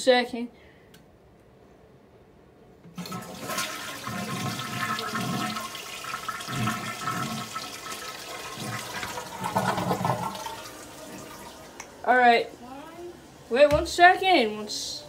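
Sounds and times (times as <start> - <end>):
toilet flushing: 2.9 - 12.6.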